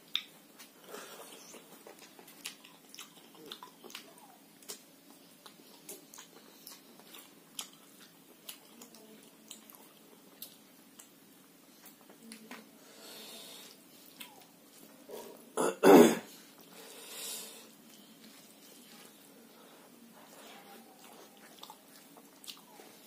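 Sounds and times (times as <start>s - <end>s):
man chewing and smacking: 0.0s - 12.6s, 14.0s - 15.5s, 17.7s - 19.3s, 20.2s - 23.0s
soft breath: 12.8s - 13.8s, 16.3s - 20.9s.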